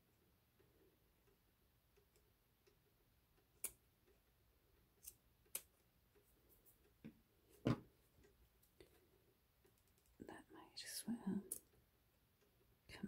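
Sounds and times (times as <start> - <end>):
scissors snipping lace: 3.5 - 3.8, 4.9 - 5.8.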